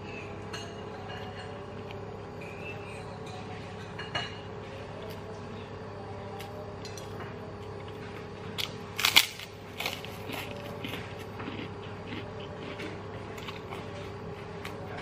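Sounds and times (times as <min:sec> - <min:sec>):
cracker being bitten and chewed: 0:08.6 - 0:14.9.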